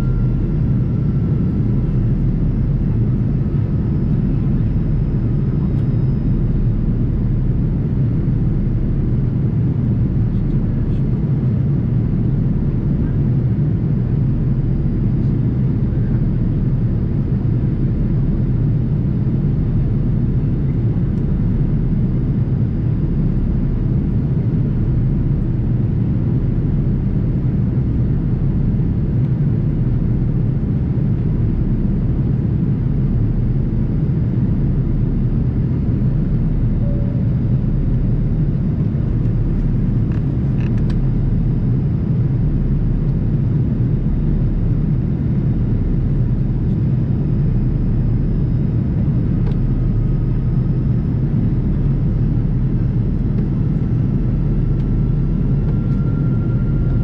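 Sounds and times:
jet airliner cabin drone: 0.0s - 57.0s.

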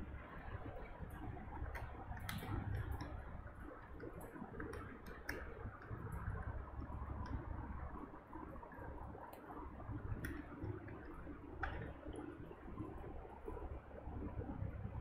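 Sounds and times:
low steady hum: 0.0s - 15.0s
light clicks and taps: 0.8s - 7.6s, 9.2s - 13.1s.

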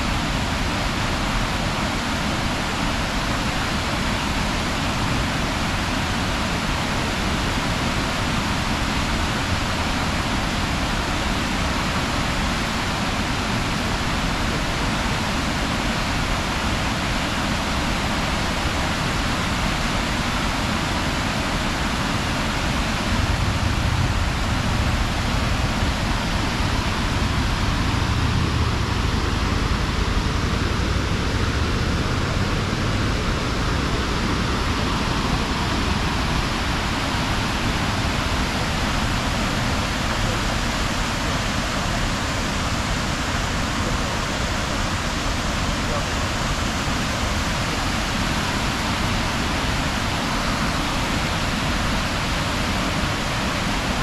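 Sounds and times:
waterfall roaring: 0.0s - 54.0s
deep low rumble: 23.0s - 40.4s.

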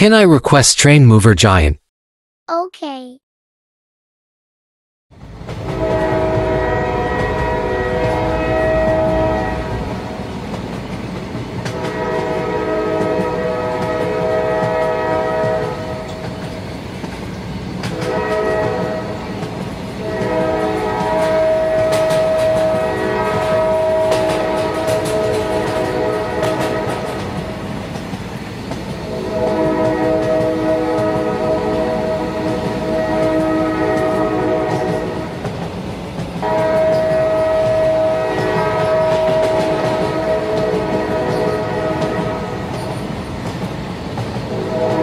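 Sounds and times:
train rumbling: 5.2s - 45.0s
multi-tone train horn blasts: 5.6s - 10.2s, 11.7s - 16.1s, 17.9s - 19.3s, 20.0s - 27.6s, 29.1s - 35.4s, 36.4s - 42.8s, 44.5s - 45.0s.

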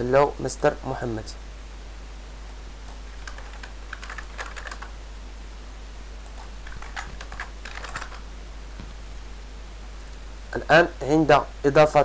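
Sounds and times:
keyboard typing: 2.8s - 4.9s, 6.2s - 8.2s.

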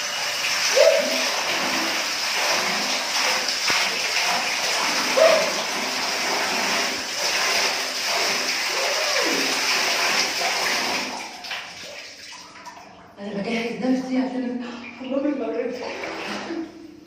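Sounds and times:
water splashing on stone floor: 0.0s - 12.9s
water pouring from a tap: 0.0s - 13.2s.

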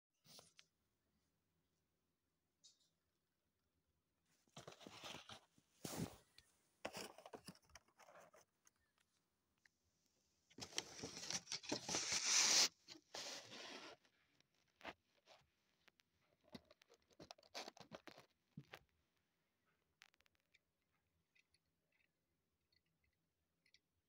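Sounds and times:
cardboard tearing: 10.7s - 14.0s.

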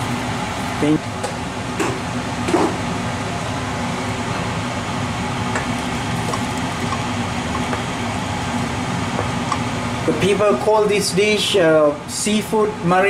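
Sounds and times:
wooden spoon stirring sauce: 5.6s - 7.9s.

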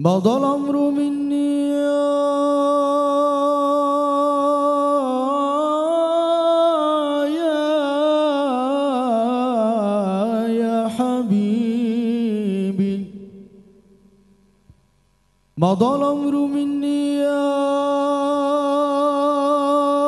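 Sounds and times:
man singing devotional song: 0.0s - 13.9s, 15.5s - 20.0s.

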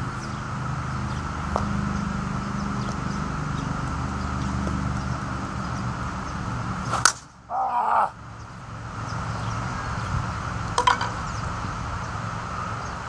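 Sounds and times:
bat cracking against softball: 6.8s - 7.4s.

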